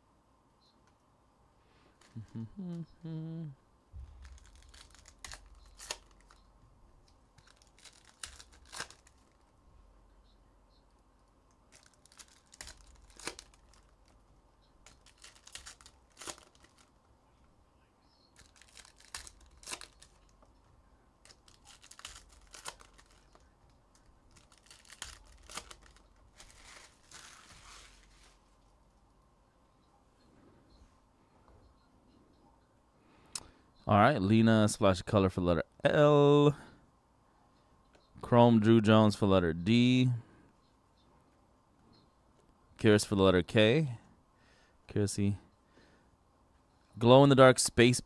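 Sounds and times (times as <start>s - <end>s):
cards snapping: 4.2s - 6.4s, 7.1s - 9.4s, 11.6s - 14.2s, 14.8s - 16.9s, 18.4s - 20.5s, 21.2s - 28.2s
wrapper tearing and crinkling: 4.2s - 6.4s, 7.4s - 9.4s, 11.7s - 14.2s, 14.8s - 16.9s, 18.4s - 20.4s, 21.2s - 28.4s.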